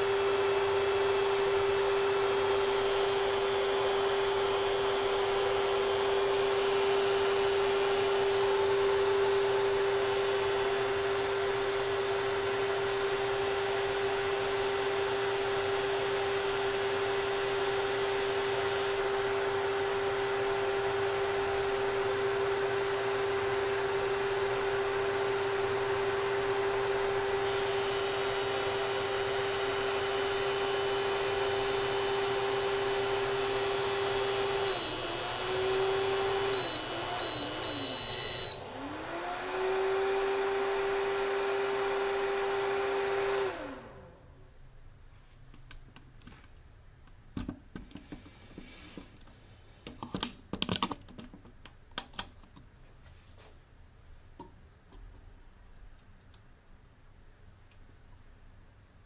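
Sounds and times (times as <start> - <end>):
induction cooktop humming: 27.0 - 43.5
high control panel beeps: 34.7 - 35.0, 36.5 - 38.6.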